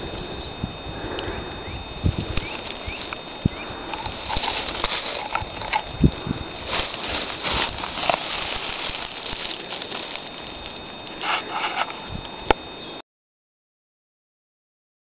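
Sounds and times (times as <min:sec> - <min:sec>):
faint high whine: 0:00.0 - 0:13.0
footsteps on dry leaves: 0:01.8 - 0:12.1.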